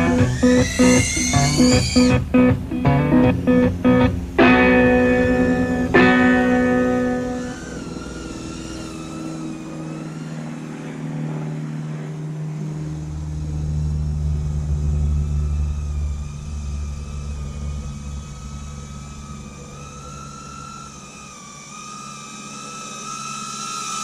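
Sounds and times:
drone motors whining: 0.0s - 24.0s.

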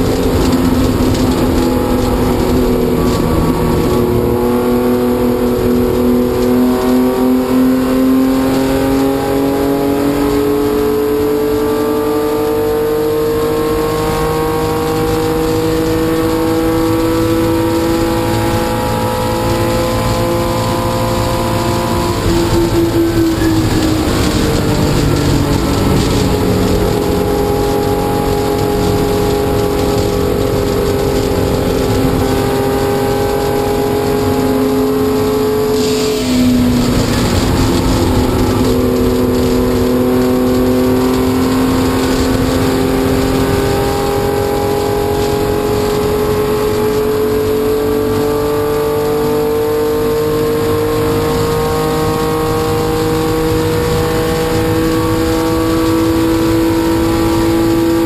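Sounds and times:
car engine at full throttle: 0.0s - 58.0s.

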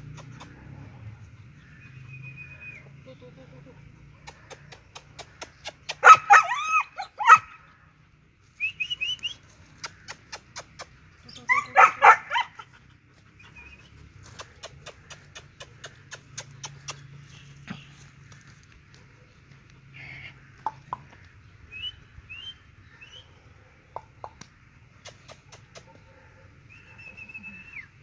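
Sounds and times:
puppy yelping barks: 5.9s - 7.6s, 11.4s - 12.7s.

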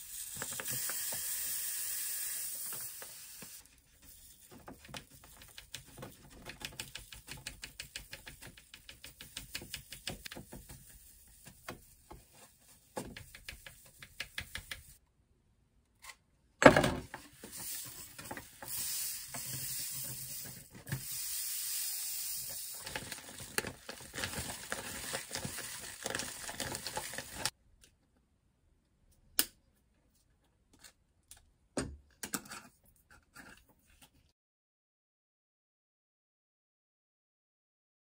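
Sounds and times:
powder pouring into a jar: 0.0s - 11.0s, 17.5s - 27.5s
plastic bag crinkling: 22.5s - 27.5s.

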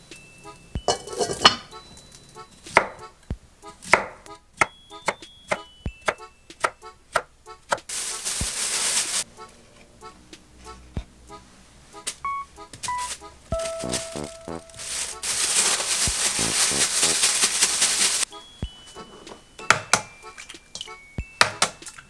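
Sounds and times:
glass pot lid clattering: 0.9s - 1.7s
plastic bag rustling: 7.9s - 9.3s, 13.0s - 19.4s.

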